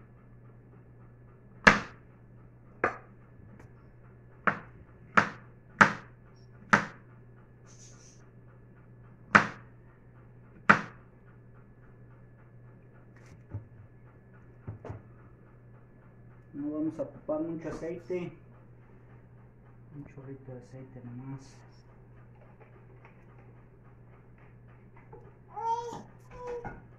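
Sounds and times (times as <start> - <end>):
faint steady hum: 0.0 - 26.9
knife chopping on cutting board: 1.6 - 2.0, 2.8 - 3.1, 4.4 - 6.1, 6.7 - 7.0, 9.3 - 9.7, 10.6 - 11.0.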